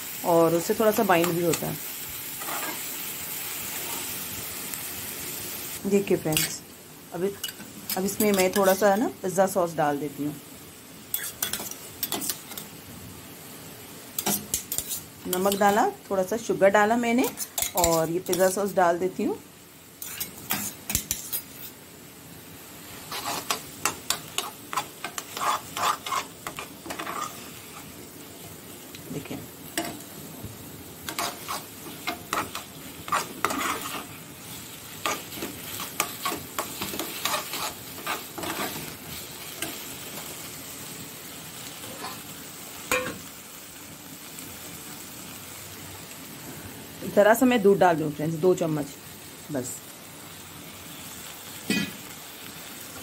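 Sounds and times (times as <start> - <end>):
light sizzle of frying: 0.0 - 53.0
spoon scraping metal pan: 2.4 - 2.9, 11.1 - 12.7, 14.2 - 15.8, 17.2 - 18.6, 20.0 - 21.8, 23.0 - 27.5, 31.1 - 34.1, 35.0 - 38.9.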